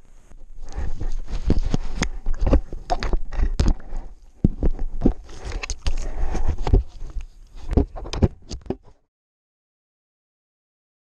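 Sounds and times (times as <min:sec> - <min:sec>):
camera bumps and rustling: 0:00.3 - 0:09.0.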